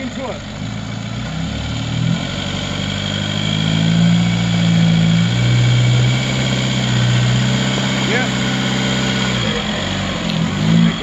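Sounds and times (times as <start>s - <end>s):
vehicle engine revving under load: 0.0s - 11.0s.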